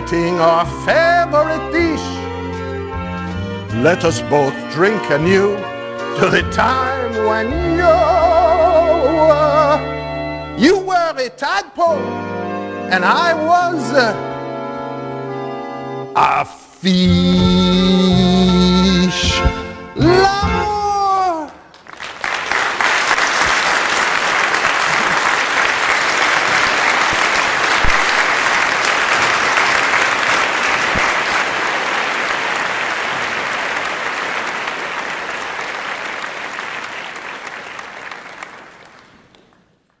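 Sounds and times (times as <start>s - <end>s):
audience applauding: 21.4s - 40.0s.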